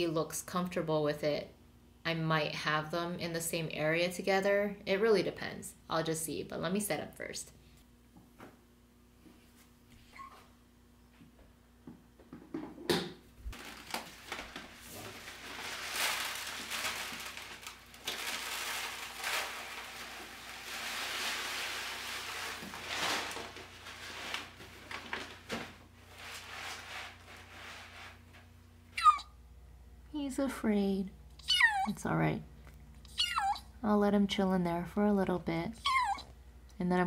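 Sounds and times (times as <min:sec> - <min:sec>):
plastic bag crinkling: 0:13.4 - 0:28.2
cat litter pouring: 0:13.5 - 0:28.2.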